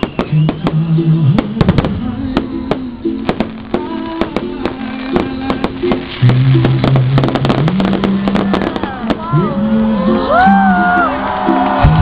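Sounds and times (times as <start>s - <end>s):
fireworks bangs and crackles: 0.0s - 9.4s
loud music with held notes: 0.1s - 12.0s.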